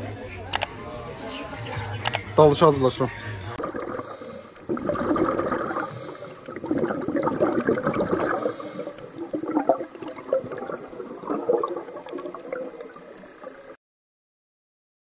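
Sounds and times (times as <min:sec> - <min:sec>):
underwater bubbling and gurgling: 0:03.6 - 0:13.8.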